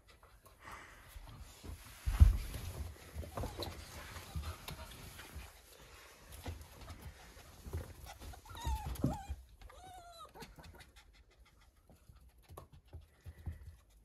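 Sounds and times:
paws scuffling: 0:01.1 - 0:10.6
animal whimpering cries: 0:08.1 - 0:10.7.

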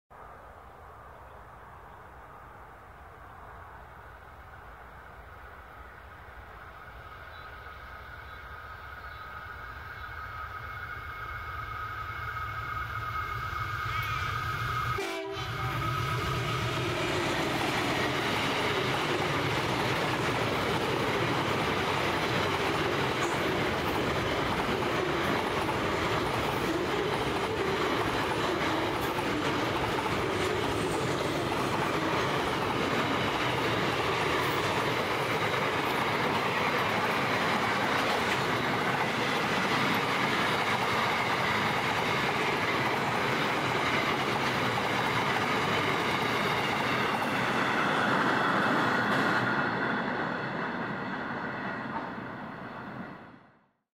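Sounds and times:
locomotive horn: 0:10.2 - 0:17.0
train wheels clattering on rails: 0:16.4 - 0:50.2.

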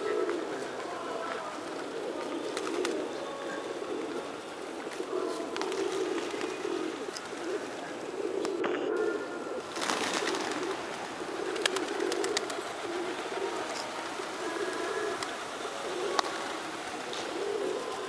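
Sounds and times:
pigeons cooing: 0:00.0 - 0:18.0.

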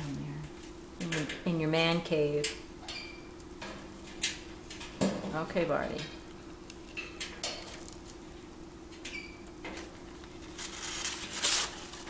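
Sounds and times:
steady low hum: 0:00.0 - 0:12.0
parrot rummaging in paper: 0:09.8 - 0:12.0.

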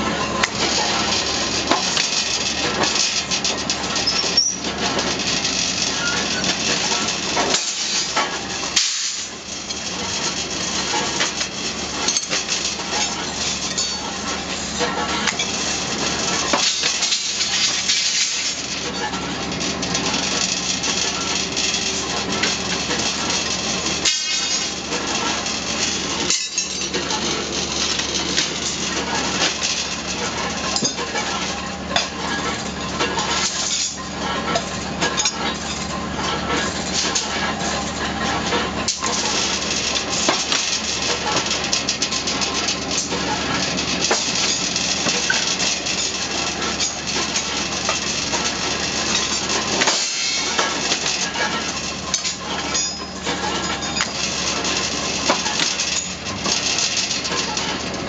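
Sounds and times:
bending machine humming: 0:00.0 - 0:58.0
steel bars clanking: 0:16.2 - 0:37.5.

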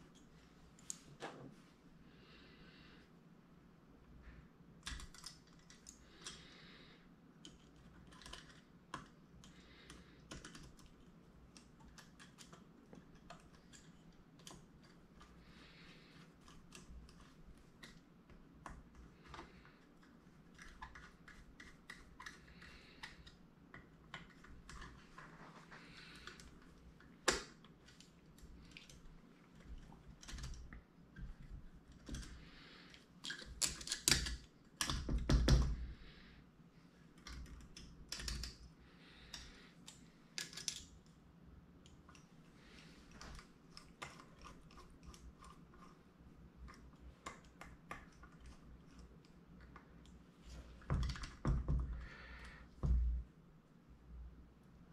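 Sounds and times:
small metal parts clicking: 0:33.2 - 0:35.1, 0:37.2 - 0:38.6, 0:39.2 - 0:41.2
clatter of parts and screwdriver: 0:33.2 - 0:35.7, 0:39.3 - 0:40.9.

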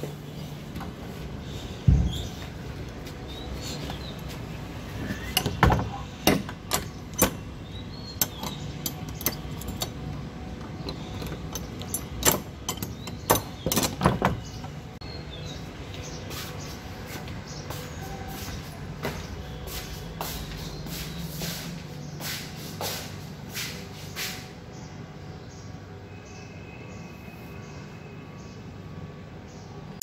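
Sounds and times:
metal bolt and padlock clacking: 0:05.3 - 0:07.5, 0:08.1 - 0:14.6.

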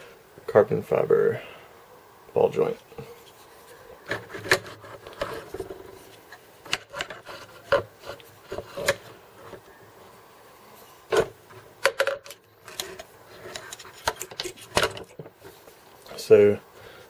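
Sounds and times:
light rubbing: 0:02.6 - 0:09.8
knocks and clicks of handled hardware: 0:11.1 - 0:15.4.

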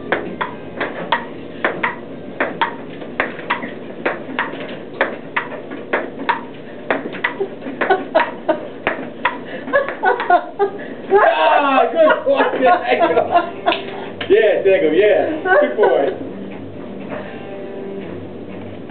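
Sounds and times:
ping-pong ball clicking: 0:00.1 - 0:07.4.

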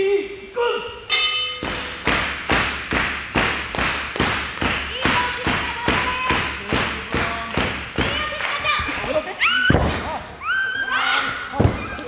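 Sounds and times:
sharp rhythmic thumps echoing: 0:01.1 - 0:10.4.

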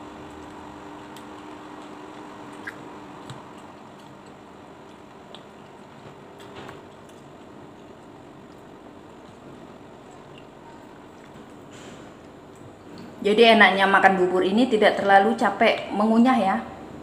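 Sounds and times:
steady low hum: 0:00.0 - 0:17.0
soft chewing: 0:00.2 - 0:13.2.

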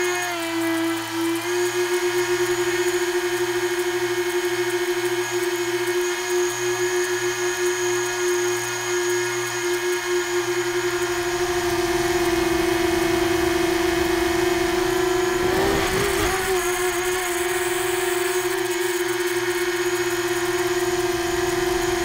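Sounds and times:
drone motors humming: 0:10.4 - 0:22.0.

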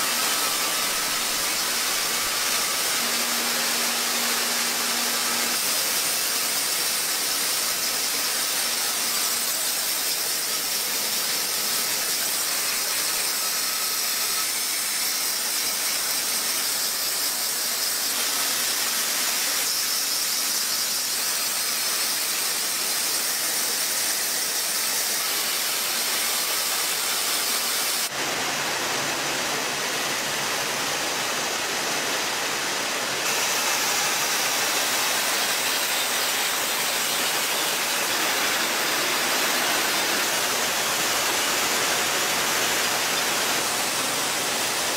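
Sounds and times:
machinery hissing: 0:25.7 - 0:44.9.

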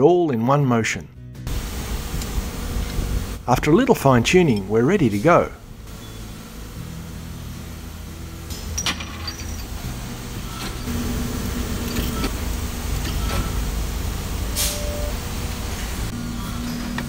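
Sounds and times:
hydraulic press humming: 0:01.5 - 0:17.0
held tone: 0:14.4 - 0:15.2
short hiss: 0:14.6 - 0:14.9.

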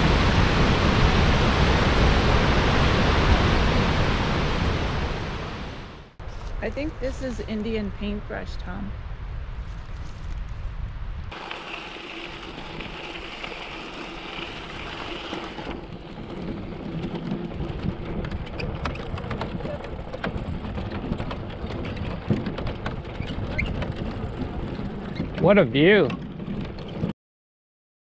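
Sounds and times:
bicycle rushing noise: 0:09.1 - 0:27.1
tyres clicking over wooden planks: 0:11.4 - 0:27.1.

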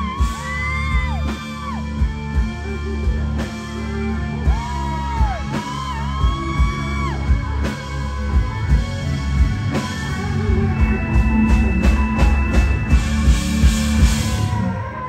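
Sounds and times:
live rock band playing: 0:00.0 - 0:15.0
sharp drum and cymbal hits: 0:09.8 - 0:14.6.

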